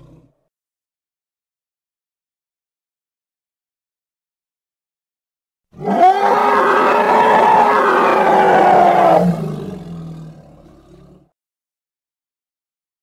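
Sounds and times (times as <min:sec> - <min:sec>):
hippopotamus roaring: 0:05.8 - 0:11.3.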